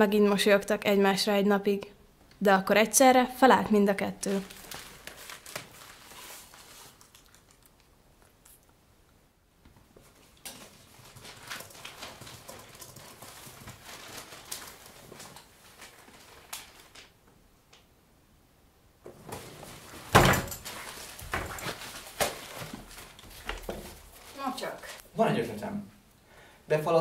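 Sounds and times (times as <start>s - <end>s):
soft rustling: 4.3s - 8.7s, 9.8s - 17.1s, 19.1s - 25.1s.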